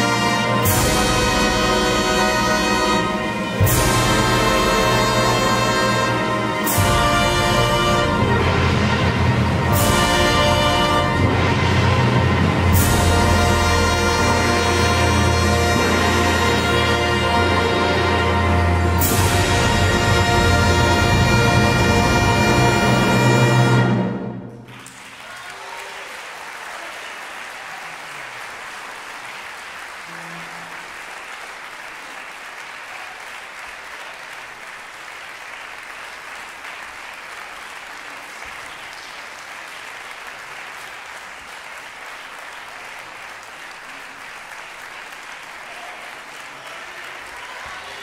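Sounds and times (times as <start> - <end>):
audience applause: 24.6 - 48.0.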